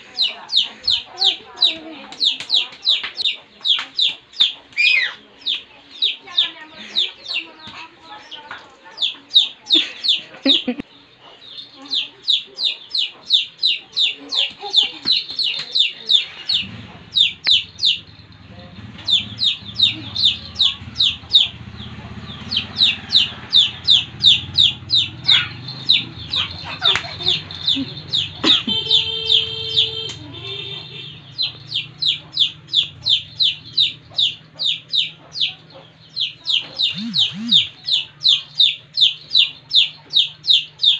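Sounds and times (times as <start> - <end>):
chicks peeping in distress: 0.0 - 40.9.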